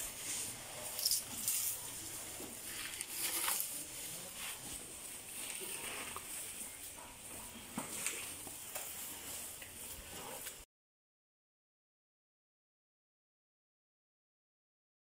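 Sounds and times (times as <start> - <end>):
elephant chewing: 0.0 - 10.6
grass rustling and crackling: 0.0 - 10.6.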